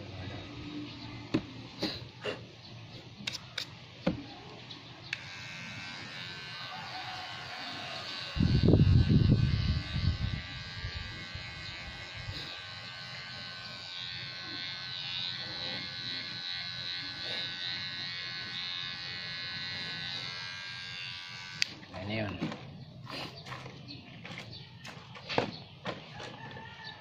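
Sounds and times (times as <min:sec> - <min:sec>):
electric hair clipper buzzing: 0:05.1 - 0:21.9.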